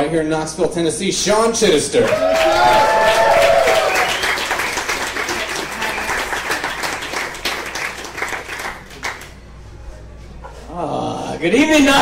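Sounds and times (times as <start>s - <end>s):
audience applauding: 2.0s - 9.4s.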